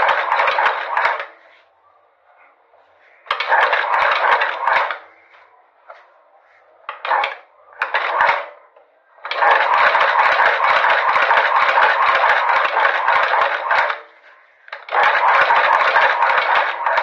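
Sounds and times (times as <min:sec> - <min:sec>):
sewing machine clattering: 0:00.0 - 0:01.4, 0:03.3 - 0:05.1, 0:06.9 - 0:08.6, 0:09.2 - 0:17.0.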